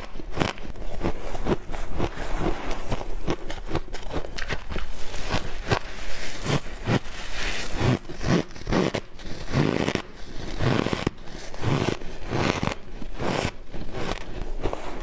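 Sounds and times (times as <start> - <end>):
ice crunching being chewed: 0.0 - 15.0.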